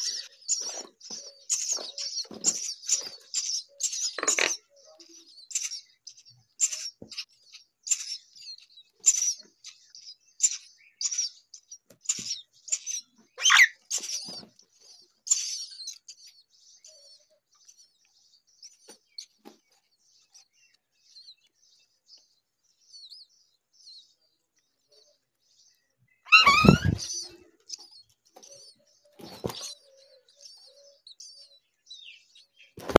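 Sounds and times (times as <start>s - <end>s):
bird call sliding down in pitch: 26.3s - 27.2s
nestlings cheeping: 26.3s - 27.4s.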